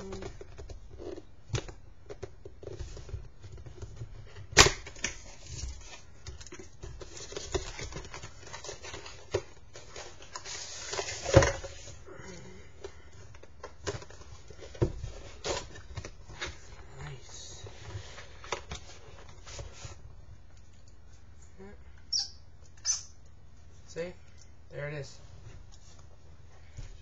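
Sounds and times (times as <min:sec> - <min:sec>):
box packaging clicks and rustles: 0:00.0 - 0:12.0, 0:12.8 - 0:16.8.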